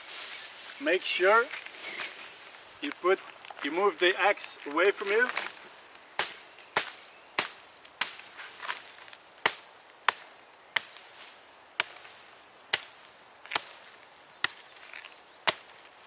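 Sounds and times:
axe chopping wood: 9.4s - 11.0s, 11.8s - 12.1s, 12.7s - 13.8s, 15.4s - 15.7s.

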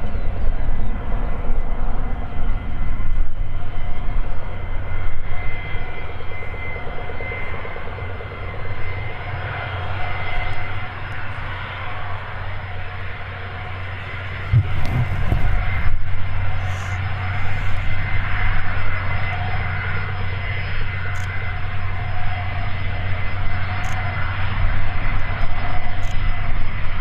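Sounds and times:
jet engine whine: 0.0s - 27.0s
low rumble: 14.1s - 18.6s.

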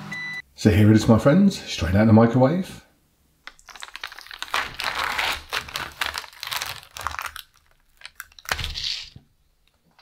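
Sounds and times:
plastic film crinkling: 3.5s - 9.2s.

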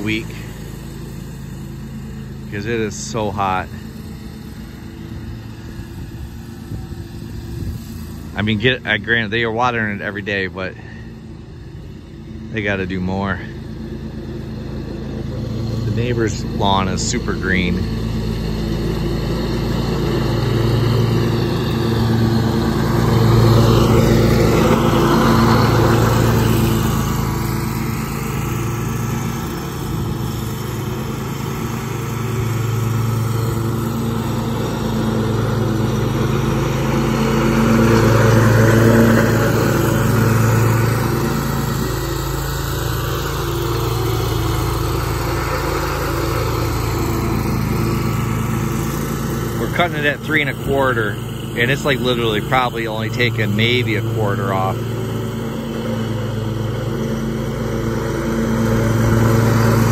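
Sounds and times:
riding mower running: 0.0s - 59.9s.

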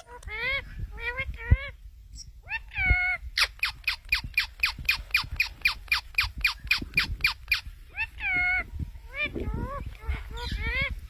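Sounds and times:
parakeet squawking: 2.4s - 10.9s.

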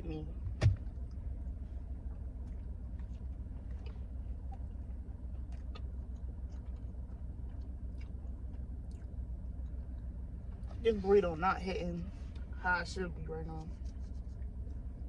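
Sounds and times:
car interior rumble: 0.0s - 15.0s
chewing clicks: 2.1s - 10.7s.

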